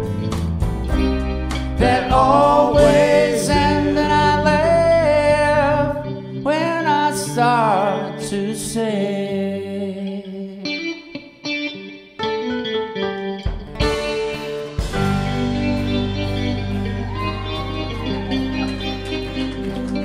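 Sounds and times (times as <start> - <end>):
live rock band playing: 0.0 - 8.3, 10.8 - 20.0
sung vocals: 1.7 - 11.0.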